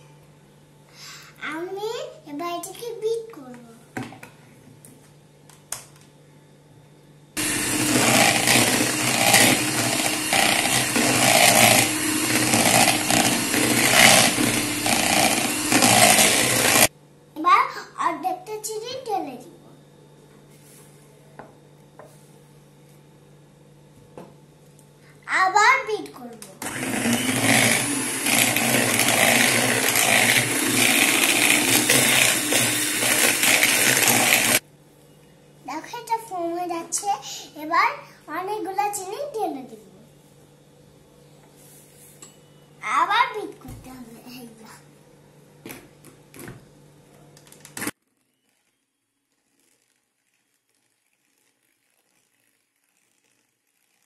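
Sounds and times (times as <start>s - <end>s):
electric hand mixer whipping: 7.4s - 16.9s, 26.6s - 34.6s.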